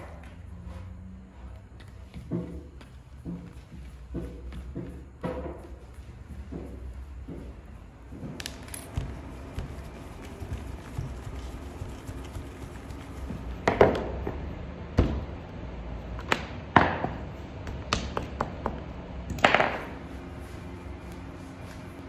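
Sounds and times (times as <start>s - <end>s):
dough being knocked and slapped: 8.2s - 14.4s, 16.2s - 20.0s.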